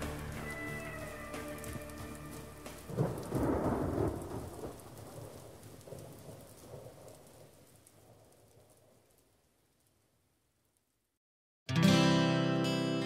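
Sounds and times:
rain hissing: 0.0 - 10.0
thunder rumbling: 0.8 - 9.5.

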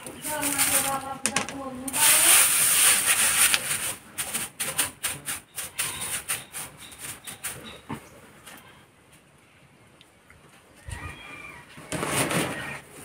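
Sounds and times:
straw rustling and crackling: 0.0 - 6.5.

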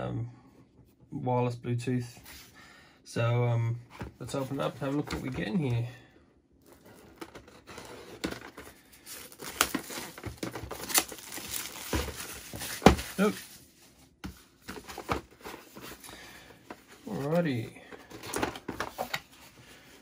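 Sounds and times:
plastic wrapping crinkling: 9.0 - 13.5.

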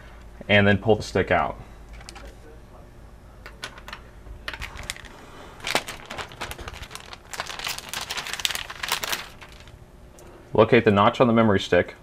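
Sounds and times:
scratchy rustling: 4.6 - 9.7.

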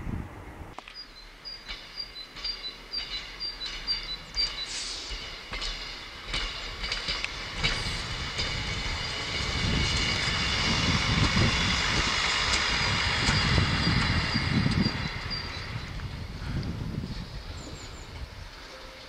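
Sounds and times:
railcar engine and wheels rumbling: 0.0 - 19.0
steady high whine: 7.8 - 16.8.

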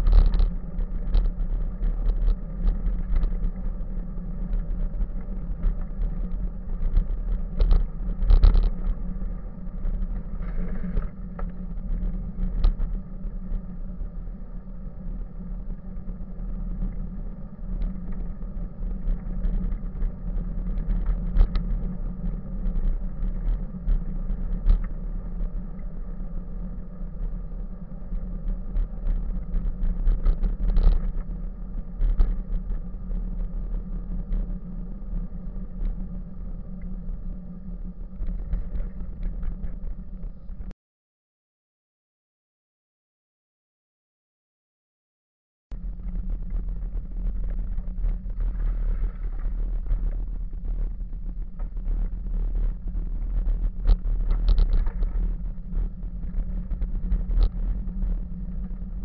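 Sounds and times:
bicycle rolling on pavement: 0.0 - 14.0.

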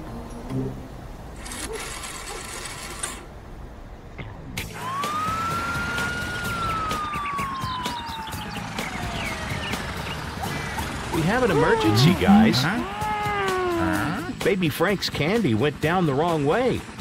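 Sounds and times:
cartoon police siren wail: 4.8 - 9.8, 10.8 - 14.3.

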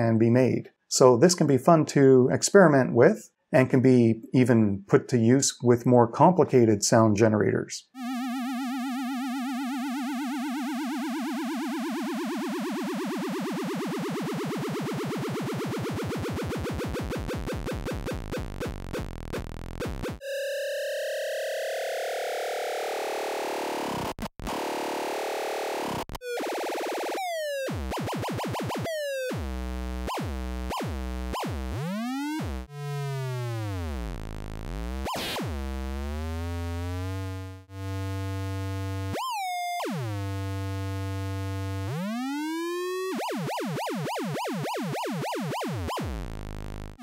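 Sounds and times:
buzzy square-wave tones sliding: 8.0 - 47.0.

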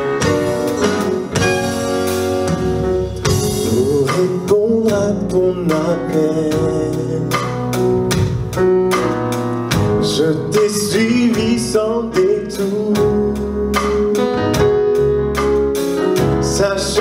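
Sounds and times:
live band playing: 0.0 - 17.0
man singing: 3.3 - 7.8, 9.8 - 14.2, 16.2 - 17.0.

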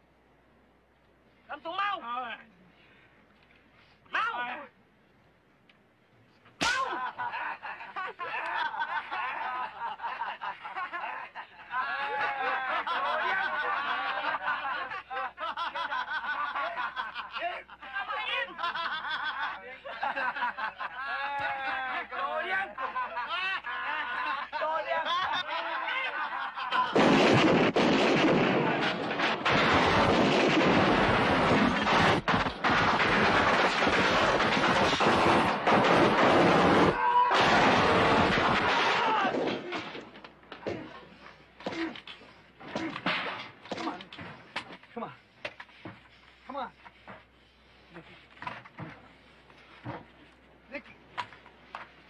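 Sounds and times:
men shouting and laughing: 6.6 - 27.2, 36.1 - 40.0
gunfire: 26.9 - 39.5.

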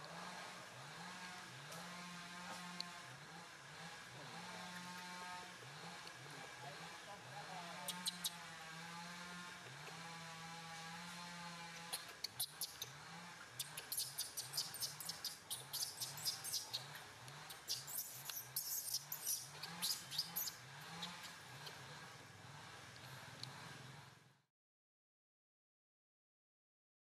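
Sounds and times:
infant monkey crying: 13.6 - 16.9.

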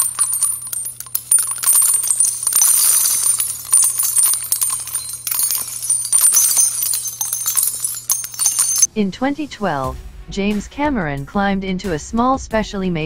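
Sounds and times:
bright jingling clinks: 0.0 - 8.9
low steady hum: 0.0 - 8.9.

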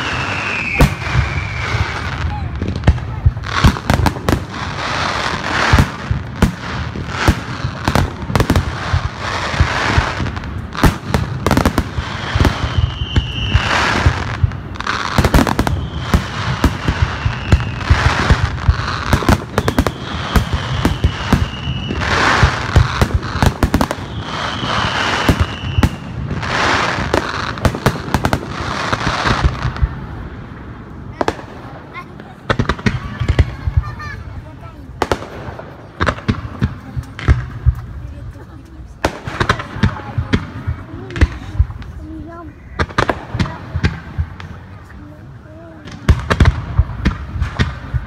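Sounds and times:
fireworks whistles: 0.0 - 2.9, 3.5 - 29.8
fireworks bangs and crackles: 0.0 - 48.0.

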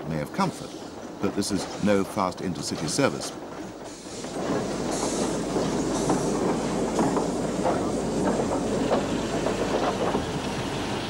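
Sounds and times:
train wheels clattering over rail joints: 0.1 - 11.0
steam hissing: 3.2 - 11.0.

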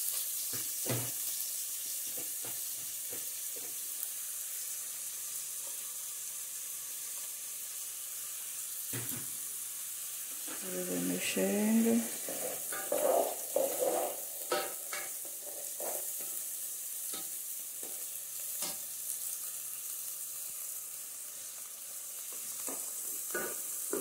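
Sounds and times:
onion sizzling in oil: 0.0 - 24.0
spatula scraping a metal pot: 12.0 - 16.4.

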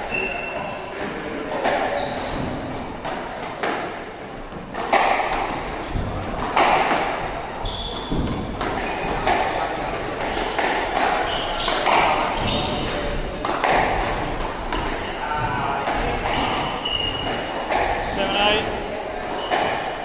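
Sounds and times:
shoes squeaking on wooden floor: 0.0 - 1.2, 1.8 - 2.9, 4.1 - 20.0
squash ball hits echoing: 0.1 - 20.0.

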